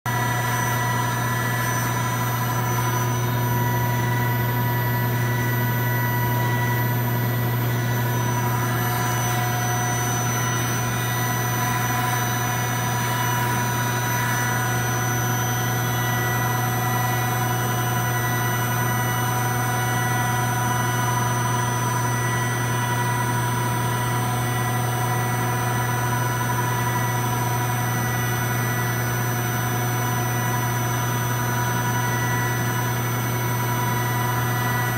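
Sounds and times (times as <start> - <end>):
low machine hum: 0.1 - 34.9
machine spindle high whine: 0.1 - 34.9.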